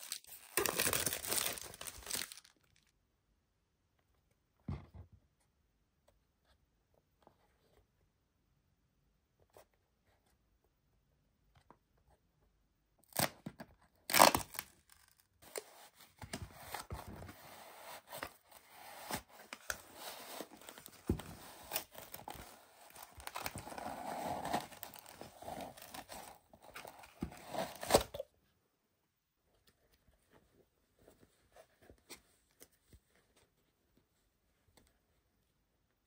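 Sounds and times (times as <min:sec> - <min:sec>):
cardboard ripping: 0:00.0 - 0:02.4, 0:18.2 - 0:28.2.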